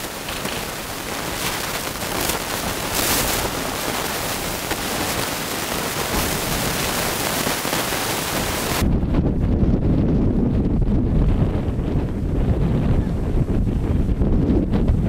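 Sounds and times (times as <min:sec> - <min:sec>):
steady outdoor hiss: 0:00.0 - 0:09.0
wind buffeting microphone: 0:00.0 - 0:15.0.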